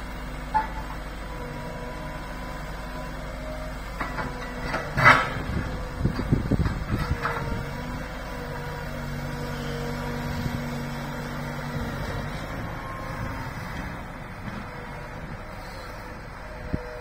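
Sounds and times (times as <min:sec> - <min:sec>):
excavator diesel engine and hydraulics: 0:00.0 - 0:17.0
metal clank: 0:00.5 - 0:01.0, 0:04.0 - 0:05.6.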